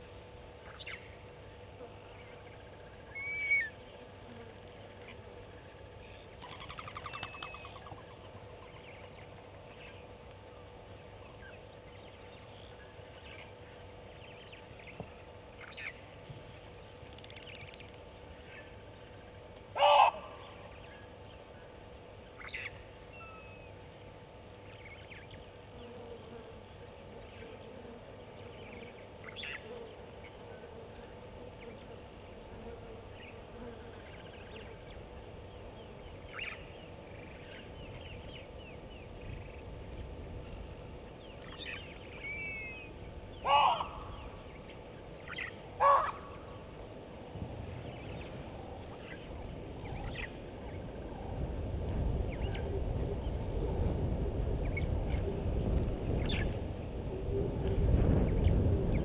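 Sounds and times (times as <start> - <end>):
faint steady hum: 0.0 - 59.0
wild bird calls: 0.6 - 10.1, 11.0 - 32.0, 33.0 - 40.1, 41.1 - 46.9, 47.8 - 51.2.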